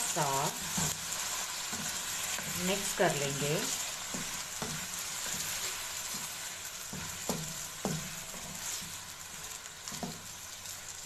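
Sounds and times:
chicken sizzling in hot oil: 0.0 - 11.0
spatula knocking against pan: 6.9 - 8.1.

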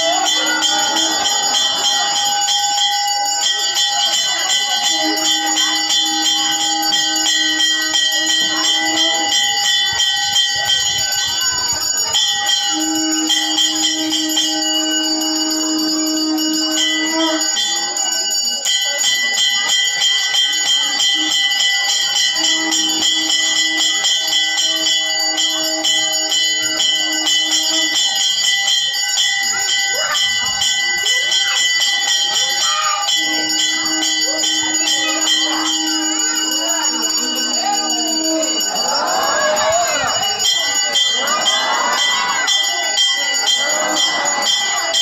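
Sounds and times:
bells ringing rapidly: 0.0 - 45.0
steady held tone: 21.0 - 45.0.

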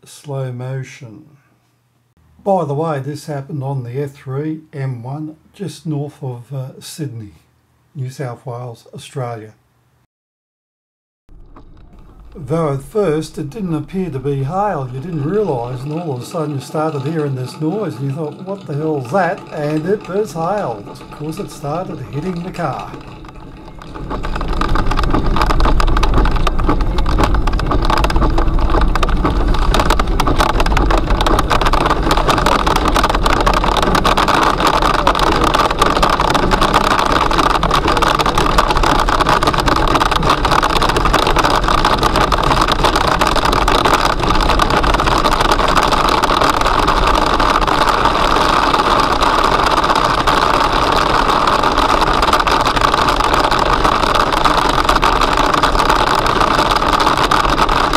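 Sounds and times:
car running and road noise: 11.3 - 17.2, 18.2 - 57.9
hail clattering on car roof: 11.3 - 57.9.

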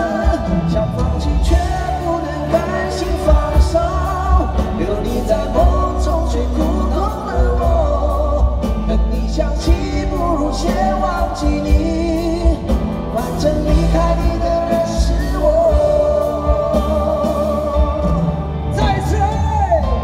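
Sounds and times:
band playing pop-rock ballad: 0.0 - 20.0
man singing: 0.0 - 20.0.

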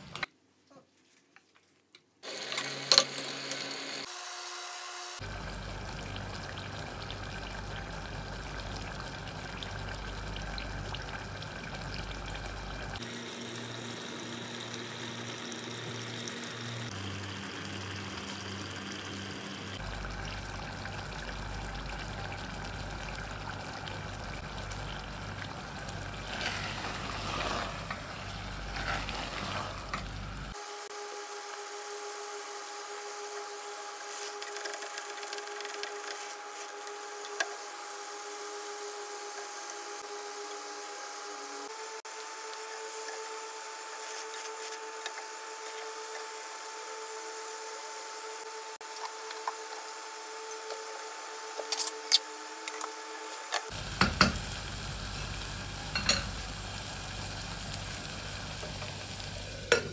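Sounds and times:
curry sizzling in pot: 5.2 - 30.8, 31.4 - 59.9.

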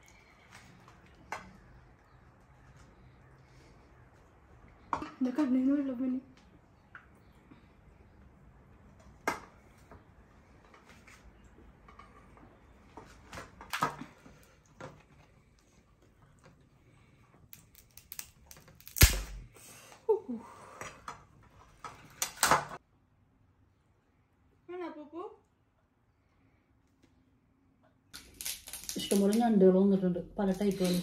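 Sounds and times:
objects being handled clicking: 17.5 - 19.3, 28.2 - 29.5.

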